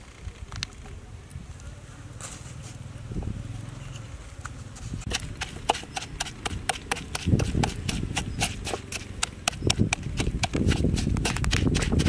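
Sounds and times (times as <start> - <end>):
dull thuds of wet mash: 5.1 - 12.0
wooden pestle knocking in mortar: 5.1 - 12.0.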